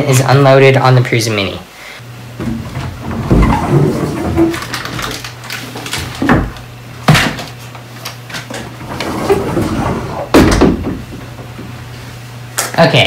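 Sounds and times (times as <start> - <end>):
objects knocking on shelves: 2.4 - 5.2, 6.0 - 7.6, 8.4 - 11.7.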